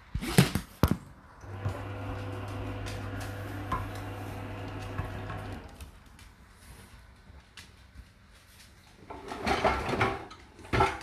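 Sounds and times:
electrical hum: 0:01.4 - 0:06.0
dishes clattering: 0:04.9 - 0:05.5, 0:09.1 - 0:11.0.

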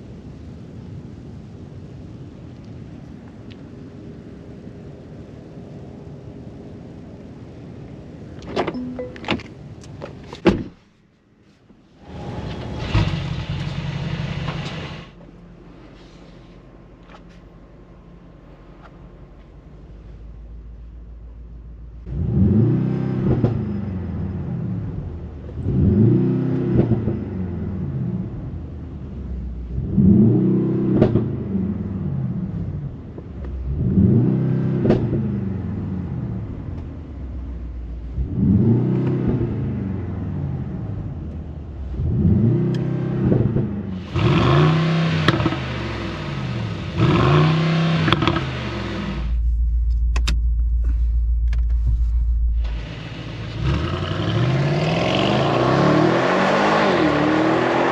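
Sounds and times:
engine low drone driving: 0:11.8 - 0:57.9
car engine revving: 0:21.9 - 0:32.7, 0:33.5 - 0:57.9
loud rushing hiss: 0:52.0 - 0:54.4.

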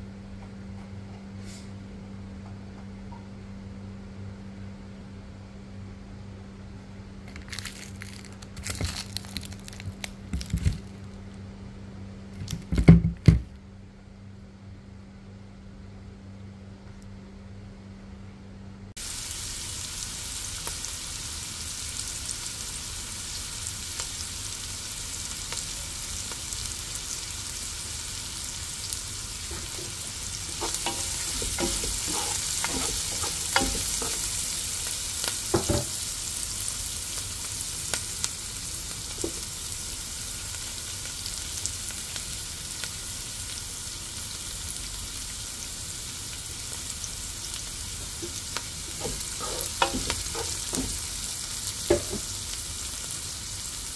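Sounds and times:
food sizzling in a pan: 0:19.0 - 0:53.9
utensil stirring food: 0:29.2 - 0:36.0, 0:48.0 - 0:52.6
utensil knocking against pan: 0:30.5 - 0:34.3, 0:48.9 - 0:51.0, 0:51.9 - 0:52.3.

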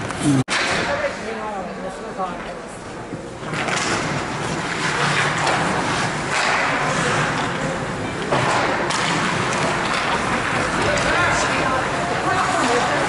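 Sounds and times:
hockey sticks hitting puck: 0:03.5 - 0:13.0
skates scraping on ice: 0:03.7 - 0:13.0.

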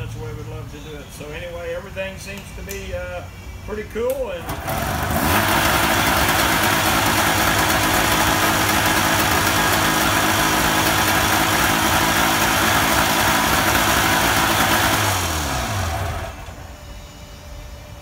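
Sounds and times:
two-stroke engine running: 0:04.4 - 0:16.9.

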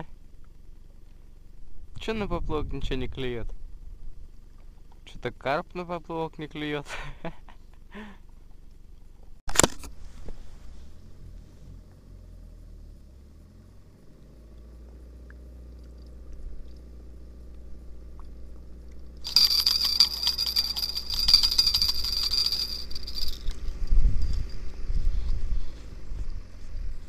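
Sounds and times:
faint low rumble: 0:00.0 - 0:27.0
spinning reel whirring: 0:19.2 - 0:23.6
handling rumbles: 0:19.2 - 0:25.0.

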